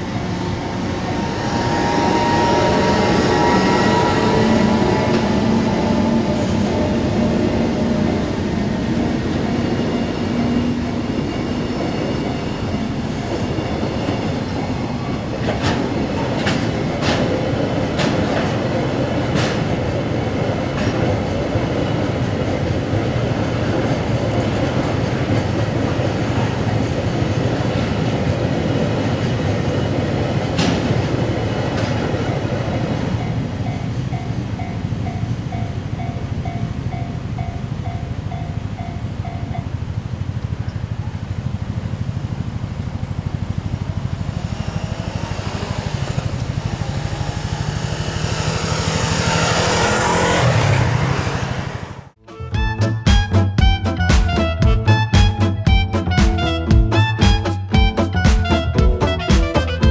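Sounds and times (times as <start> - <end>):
freight train rumbling over rails: 0.0 - 59.9
locomotive humming: 0.0 - 59.9
wheel clacks at rail joints: 8.8 - 40.9.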